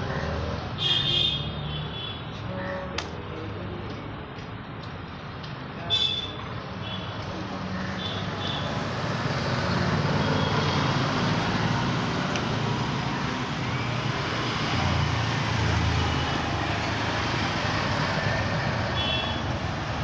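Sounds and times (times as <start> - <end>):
road traffic passing: 0.0 - 20.0.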